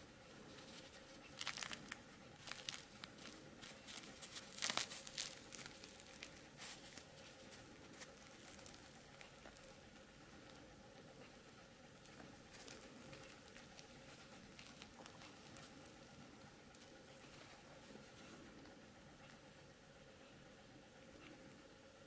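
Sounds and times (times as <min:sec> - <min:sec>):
crust crackling as donut torn: 0:00.6 - 0:09.7, 0:12.1 - 0:16.1.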